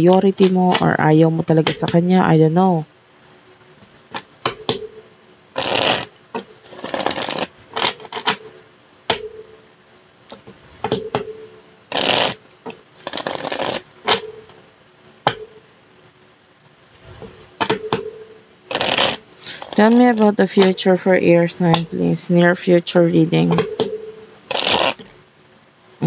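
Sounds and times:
cards shuffling: 6.7s - 8.4s, 13.0s - 13.8s, 18.7s - 20.8s, 24.5s - 25.1s.

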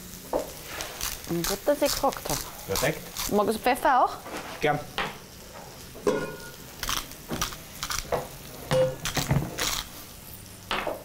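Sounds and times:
pepper mill grinding: 0.8s - 3.7s, 6.8s - 10.0s
kitchen utensils clinking: 6.0s - 6.6s, 8.1s - 9.6s.

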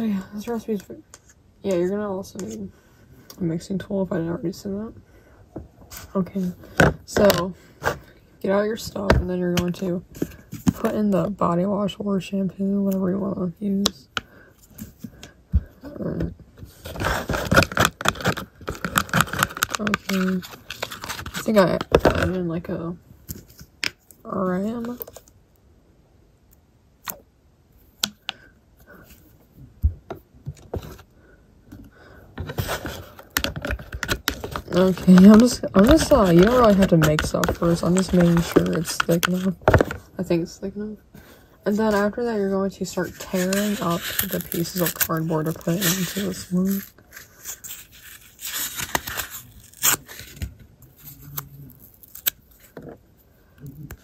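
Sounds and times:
stick scraping plastic tub: 32.4s - 40.0s, 42.8s - 49.3s
cardboard ripping by hand: 47.7s - 50.4s.

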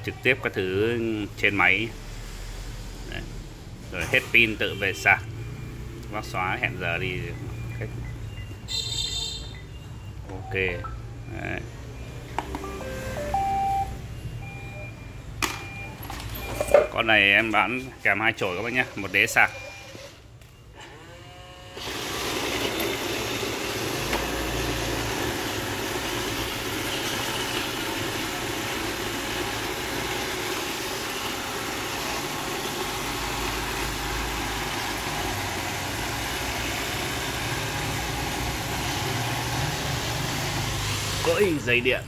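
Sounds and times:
robot vacuum running: 21.0s - 41.4s.

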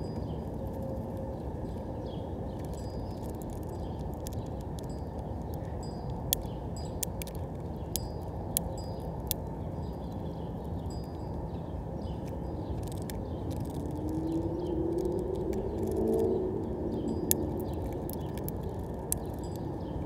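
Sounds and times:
low hum rising in pitch: 13.4s - 18.3s.

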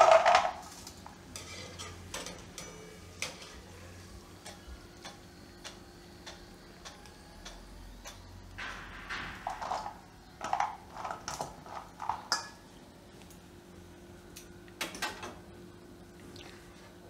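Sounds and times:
metal kitchenware clinking: 0.0s - 3.7s, 8.6s - 12.6s
faint steady hum: 0.0s - 17.0s.

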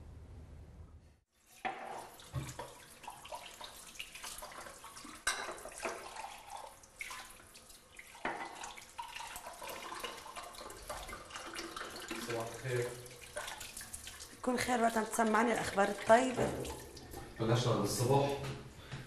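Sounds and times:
tap running into a sink: 1.6s - 3.7s, 8.2s - 8.7s, 16.0s - 17.4s
crockery and cutlery clinking: 5.2s - 6.0s.

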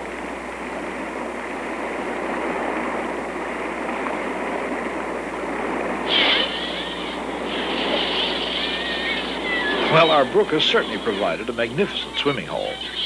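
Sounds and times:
waterfall rushing water: 6.0s - 13.0s.

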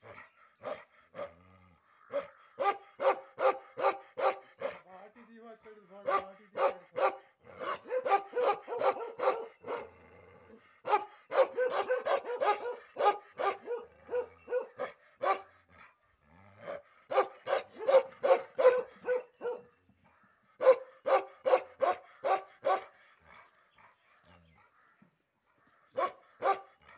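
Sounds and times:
dog barking aggressively: 2.1s - 4.8s, 6.0s - 10.0s, 10.8s - 15.5s, 16.7s - 19.7s, 20.6s - 23.0s, 26.0s - 26.9s.

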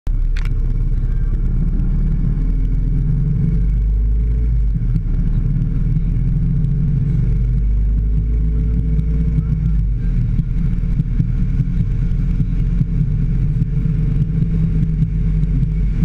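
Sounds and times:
road noise: 0.0s - 16.0s
vehicle engine rumble: 0.0s - 16.0s.

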